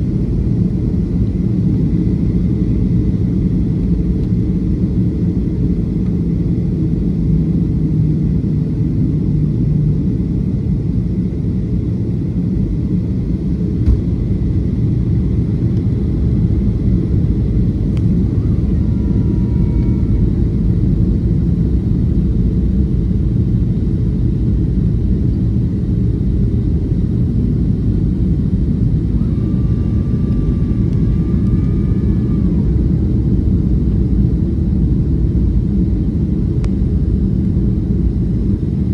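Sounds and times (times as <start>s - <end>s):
airflow over fuselage: 0.0s - 38.9s
jet engines low roar: 0.0s - 38.9s
faint whining tones: 14.9s - 22.2s, 27.8s - 35.4s.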